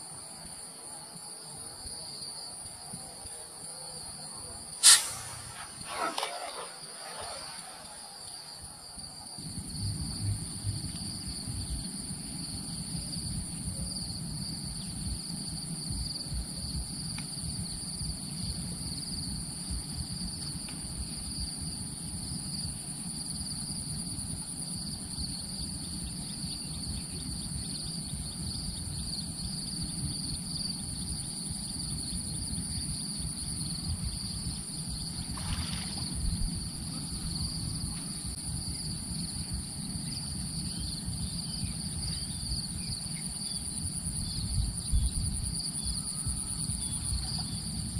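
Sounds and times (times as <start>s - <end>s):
short burst of noise: 4.8s - 8.1s
insects shrilling: 4.8s - 8.7s
wind rumble on microphone: 8.5s - 47.9s.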